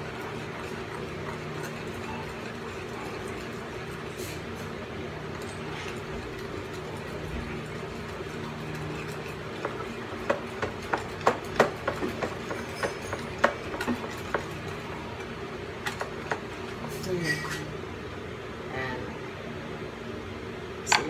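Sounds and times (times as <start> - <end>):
whisk clicking against bowl: 0.0 - 4.1, 5.3 - 16.8
whisk beating eggs in a bowl: 0.0 - 17.0
steady low hum: 0.0 - 21.0.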